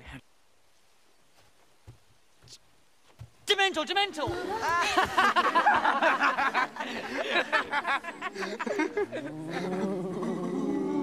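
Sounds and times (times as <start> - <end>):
boys making ghostly moaning: 4.3 - 11.0
boys snickering: 4.3 - 11.0
low hum: 7.8 - 11.0.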